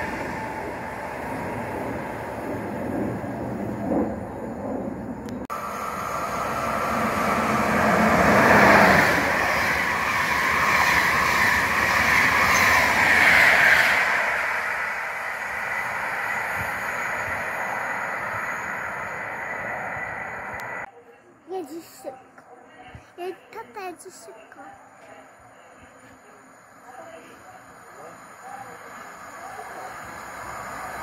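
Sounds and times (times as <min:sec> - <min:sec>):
train wheels rushing on rail: 0:00.0 - 0:20.9, 0:27.6 - 0:31.0.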